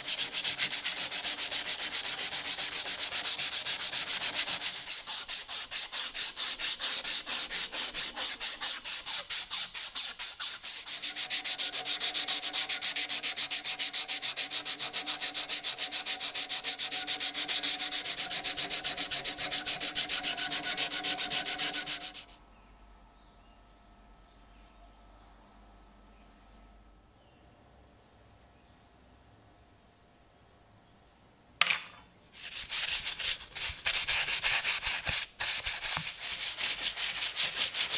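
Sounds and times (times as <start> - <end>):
sandpaper rubbing on metal: 0.0 - 22.4, 32.4 - 37.9.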